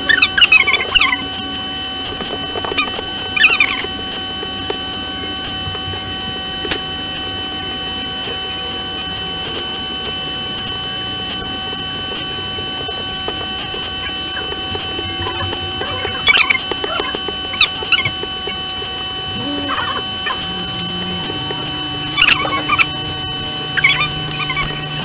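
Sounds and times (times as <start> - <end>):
high-pitched electrical whine: 0.0 - 25.0
squeaky scratch: 12.8 - 25.0.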